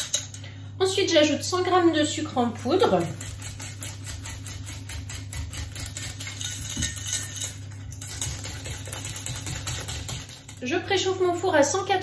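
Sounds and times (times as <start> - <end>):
whisk scraping metal bowl: 2.2 - 10.8.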